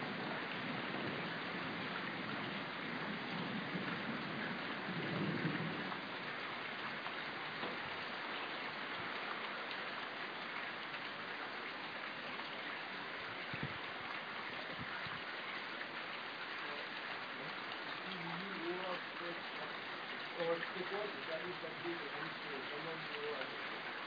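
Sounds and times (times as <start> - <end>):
low thunder rumble: 0.0 - 8.0
heavy rain hissing: 0.0 - 24.0.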